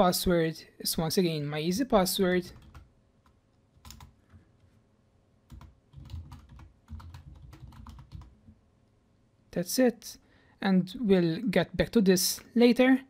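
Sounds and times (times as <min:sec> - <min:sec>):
typing on computer keyboard: 0:02.5 - 0:02.9, 0:03.7 - 0:04.4, 0:05.5 - 0:08.4.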